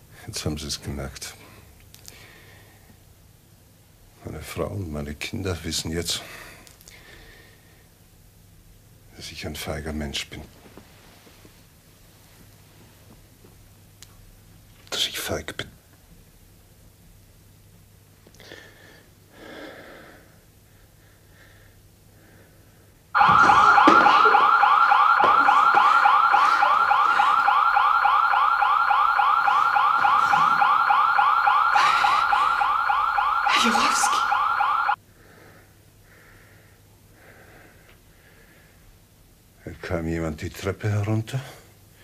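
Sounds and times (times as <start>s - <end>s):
alarm siren warbling: 23.2s - 35.0s.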